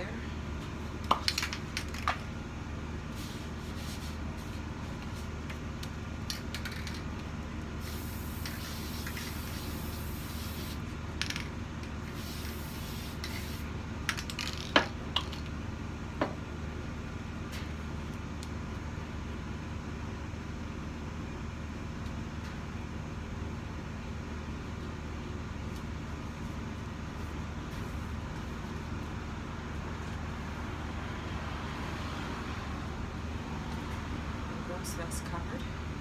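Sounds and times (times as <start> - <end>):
aerosol can hissing: 7.8 - 10.8, 12.1 - 13.6.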